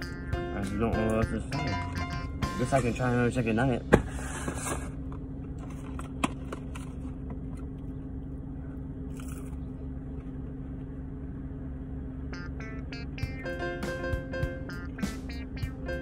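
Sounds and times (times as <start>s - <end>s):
plucked-string background music: 0.0s - 3.6s, 12.3s - 16.0s
car interior hum: 0.0s - 16.0s.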